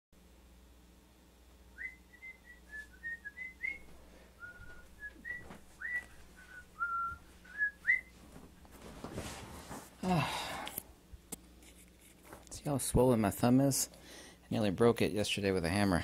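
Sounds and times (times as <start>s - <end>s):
person whistling a tune: 1.8s - 8.1s.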